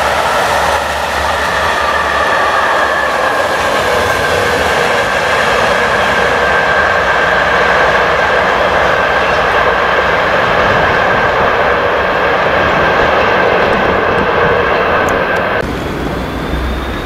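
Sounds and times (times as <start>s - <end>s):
high squeal: 0.0s - 9.9s, 15.6s - 17.0s
freight train rushing noise: 0.0s - 17.0s.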